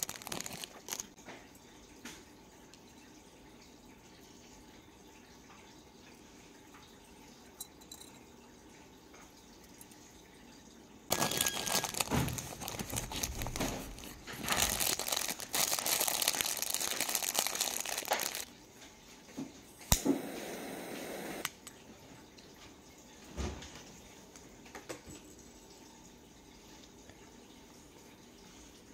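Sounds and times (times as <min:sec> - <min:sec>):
plastic wrapping crinkling: 0:00.0 - 0:01.2, 0:11.1 - 0:18.5
short steady hiss: 0:20.0 - 0:21.5.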